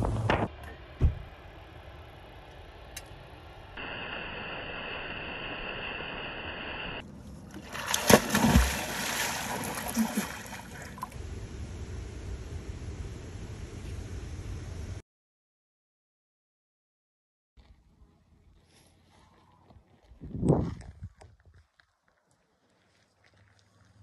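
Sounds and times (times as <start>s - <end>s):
loud splashing in water: 7.6s - 11.2s.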